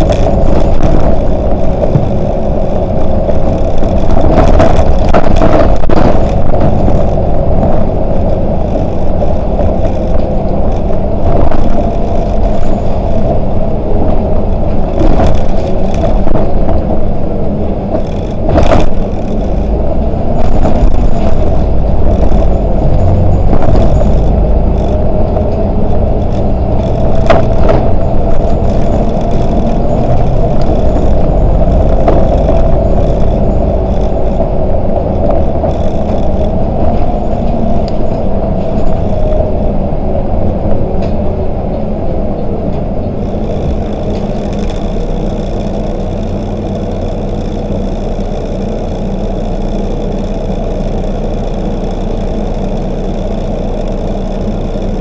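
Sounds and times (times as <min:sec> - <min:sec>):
sharp knocks and rattles: 0:00.0 - 0:17.0, 0:17.9 - 0:39.6
bus engine and road noise: 0:00.0 - 0:55.0
constant whine: 0:00.0 - 0:55.0.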